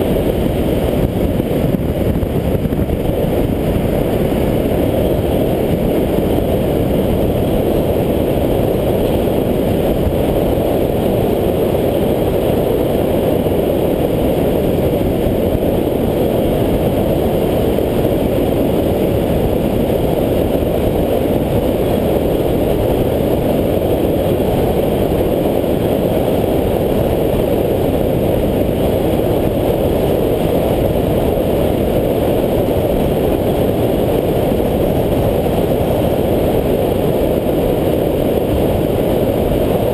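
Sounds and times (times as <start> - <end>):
longboard wheels rolling on asphalt: 0.0 - 39.9
wind on microphone: 0.0 - 39.9.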